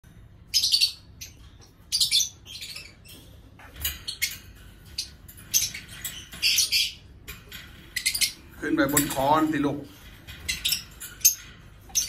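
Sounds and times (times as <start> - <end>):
lovebird chirping: 0.5 - 3.2, 3.9 - 7.2.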